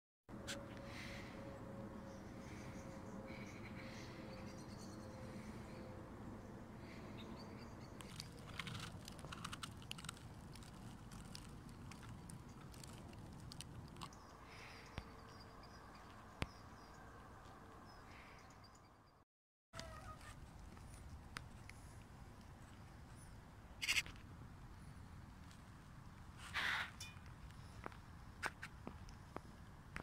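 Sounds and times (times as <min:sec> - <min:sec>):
soft crackling clicks: 0:08.0 - 0:14.1.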